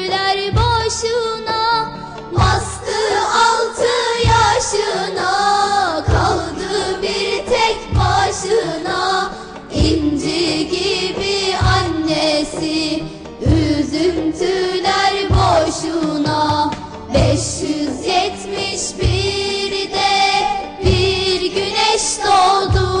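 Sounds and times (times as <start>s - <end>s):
instrumental backing: 0.0s - 23.0s
low drum beat: 2.3s - 3.0s, 4.2s - 4.9s, 6.0s - 7.2s, 7.8s - 8.9s, 9.8s - 12.4s, 13.4s - 20.2s, 20.8s - 21.9s
children's choir singing: 2.3s - 23.0s.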